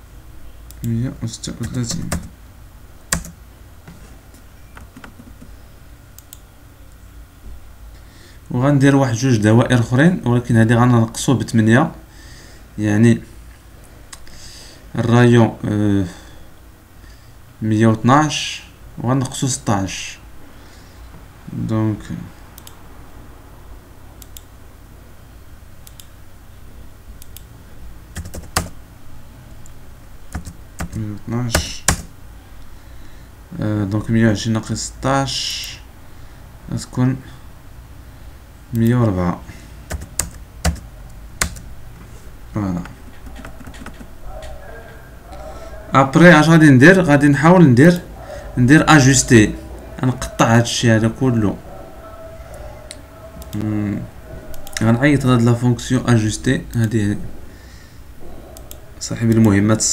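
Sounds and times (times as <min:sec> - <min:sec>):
steady low hum: 0:00.0 - 0:59.9
keyboard and mouse clicks: 0:04.7 - 0:05.5, 0:29.6 - 0:31.0, 0:39.9 - 0:41.6, 0:42.8 - 0:44.6, 0:54.5 - 0:54.9, 0:58.5 - 0:59.6
mouse clicks: 0:22.6 - 0:22.8, 0:25.8 - 0:26.1, 0:58.5 - 0:59.5
keyboard keystrokes: 0:28.2 - 0:28.8, 0:30.3 - 0:31.0, 0:31.6 - 0:32.1, 0:39.9 - 0:41.6, 0:42.8 - 0:44.1.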